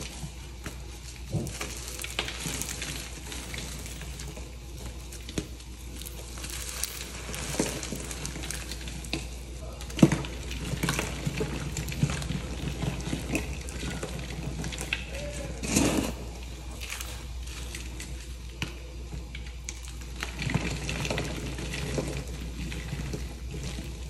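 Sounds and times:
powder blocks crushed by hand: 0.0 - 24.0.

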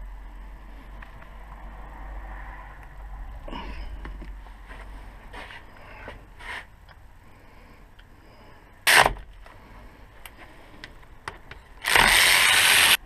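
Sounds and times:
ratchet wrench ratcheting: 11.8 - 13.0.

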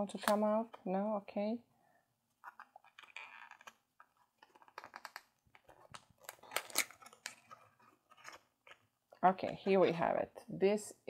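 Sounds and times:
cardboard packaging rustling: 2.4 - 9.8.

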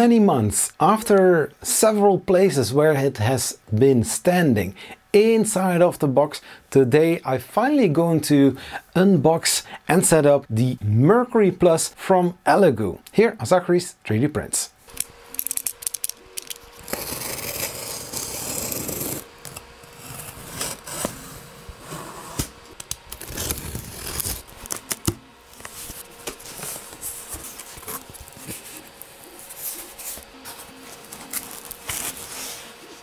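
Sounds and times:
utility knife slicing packing tape: 15.4 - 21.2, 22.4 - 25.2
cardboard scraping and rubbing: 16.8 - 33.0.

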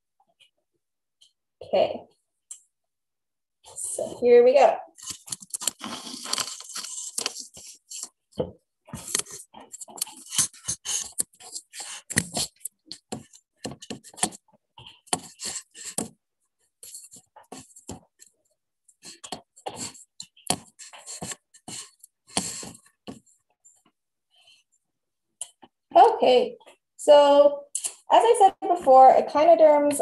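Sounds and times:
webcam handling knocks and scrapes: 5.0 - 16.2, 20.5 - 23.2.

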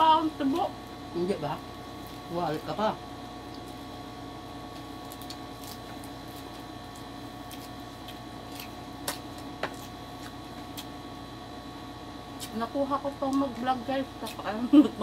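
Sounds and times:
background hum: 0.0 - 15.0.

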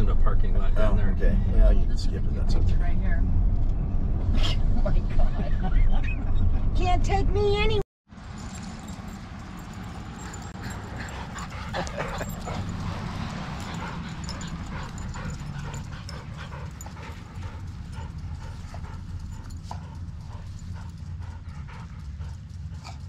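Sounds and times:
low steady rumble: 0.0 - 23.0
dog panting: 9.6 - 23.0.

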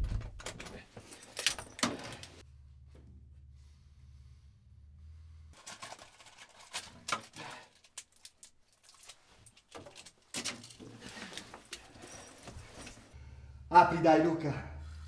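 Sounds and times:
handling clicks and rustles: 0.0 - 2.4, 5.6 - 13.2.

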